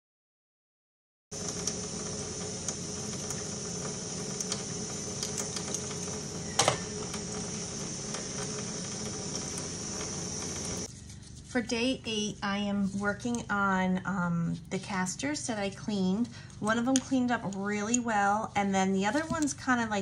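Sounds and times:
tap water running into a sink: 1.4s - 10.9s.

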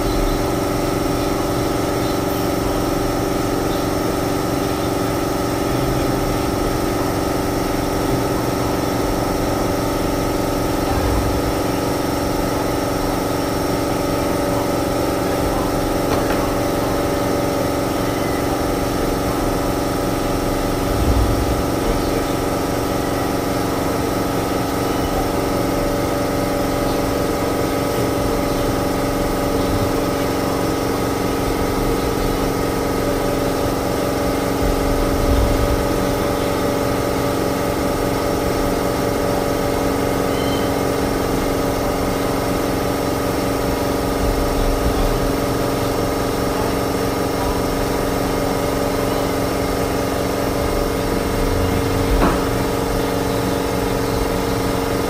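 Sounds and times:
motor humming: 0.0s - 55.0s
low thumps: 20.6s - 22.2s.

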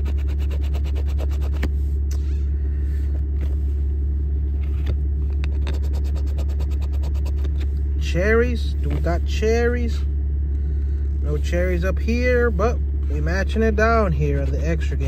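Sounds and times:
coin scratching lottery ticket: 0.0s - 1.6s, 5.6s - 7.5s
car rumble: 0.0s - 15.0s.

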